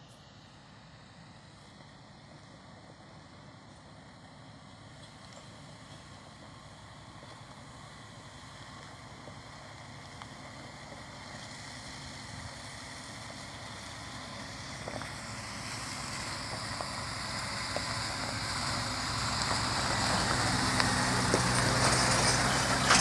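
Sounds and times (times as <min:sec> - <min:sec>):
truck diesel engine approaching: 0:00.0 - 0:23.0
tyres on gravel: 0:04.8 - 0:23.0.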